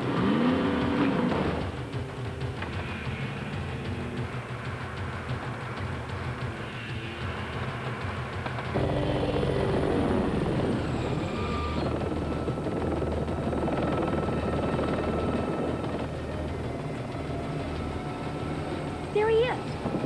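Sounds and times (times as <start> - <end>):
helicopter flying: 0.0 - 20.0.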